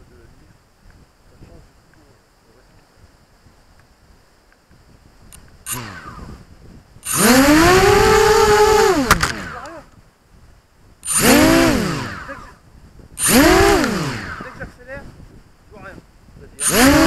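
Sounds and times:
small engine revving: 0:05.4 - 0:09.8, 0:11.0 - 0:12.6, 0:13.2 - 0:14.7, 0:16.6 - 0:17.0.

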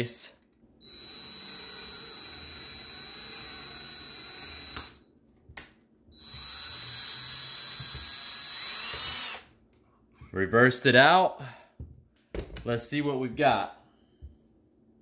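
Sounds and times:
drill click: 0:00.8 - 0:05.0, 0:06.2 - 0:09.4
power drill motor running: 0:00.8 - 0:05.0, 0:06.2 - 0:09.4.

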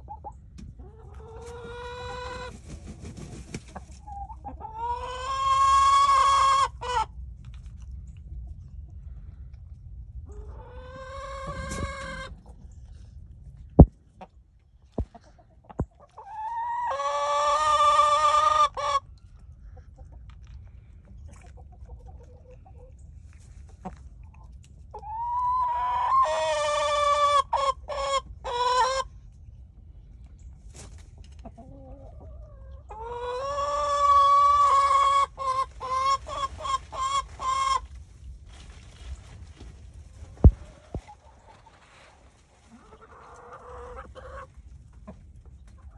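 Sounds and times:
chicken calling loudly: 0:04.6 - 0:07.1, 0:25.0 - 0:29.0.

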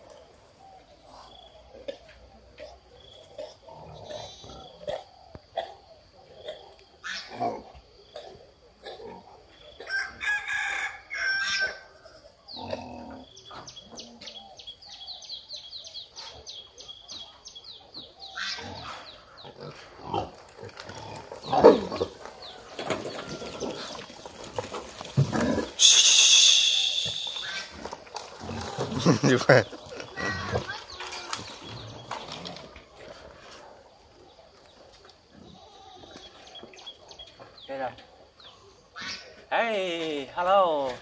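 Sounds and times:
farmyard animal calls: 0:00.0 - 0:41.0
boar grunting and squealing: 0:01.2 - 0:09.9, 0:12.5 - 0:14.6, 0:18.2 - 0:34.2, 0:38.9 - 0:39.5
quick high chirps: 0:25.8 - 0:27.7
loud shrill animal call: 0:25.8 - 0:27.8.

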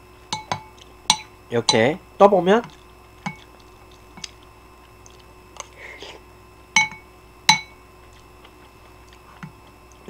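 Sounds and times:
metal spoon clinking against bowl: 0:00.3 - 0:02.0, 0:02.6 - 0:03.5, 0:06.8 - 0:07.8.

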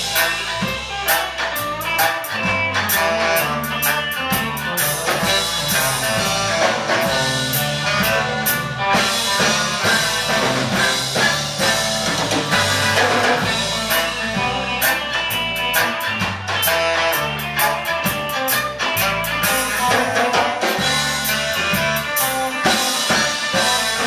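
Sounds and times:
drum kit hits: 0:00.0 - 0:24.0
electric guitars: 0:00.0 - 0:24.0
live band playing: 0:00.0 - 0:24.0.

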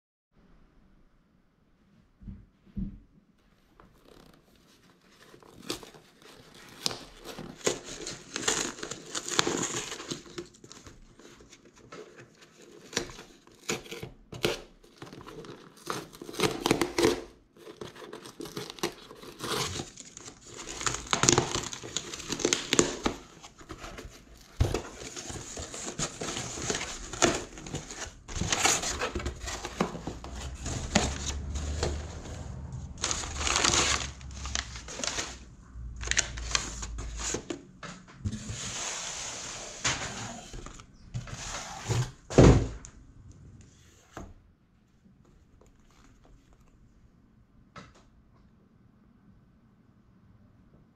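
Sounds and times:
packing paper rustling: 0:03.9 - 0:37.6, 0:45.3 - 0:46.8
tape and cardboard ripping: 0:12.8 - 0:37.5.

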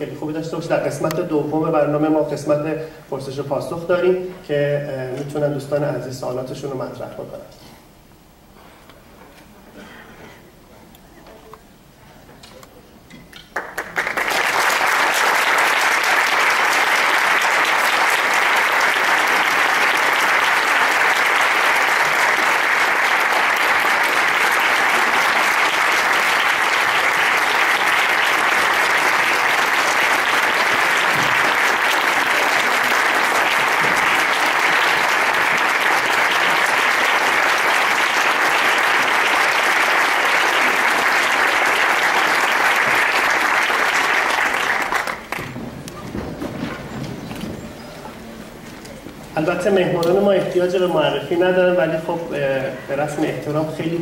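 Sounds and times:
audience applauding: 0:13.5 - 0:48.3.

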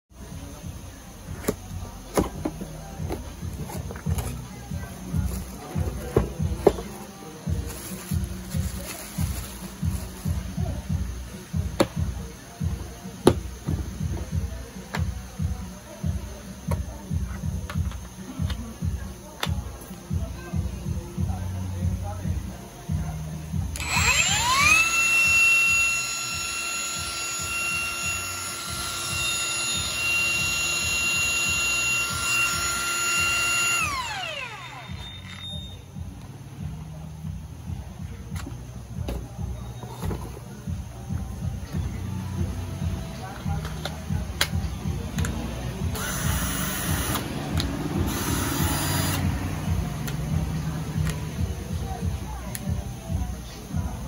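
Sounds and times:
angle grinder motor whine: 0:23.7 - 0:35.8, 0:48.1 - 0:49.2.

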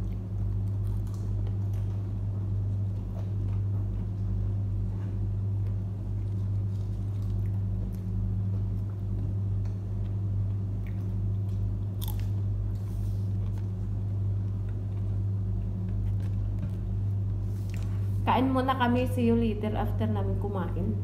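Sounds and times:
chewing and crunchy bites: 0:00.0 - 0:04.5, 0:05.6 - 0:16.6
low machine hum: 0:00.0 - 0:21.0.

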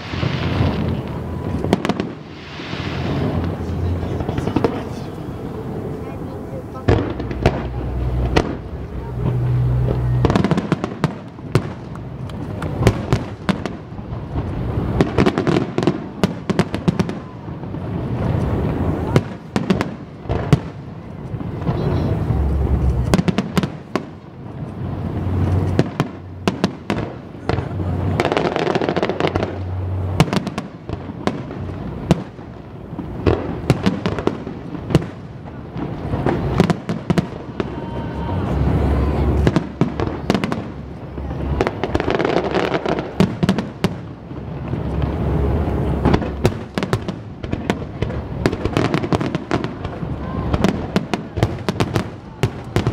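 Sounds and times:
fireworks bangs and crackles: 0:00.0 - 0:52.9
low steady hum: 0:03.1 - 0:12.8.

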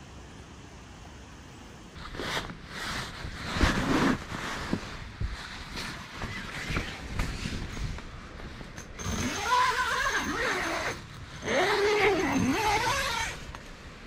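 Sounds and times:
zipper being pulled: 0:02.0 - 0:08.0, 0:08.7 - 0:13.6.

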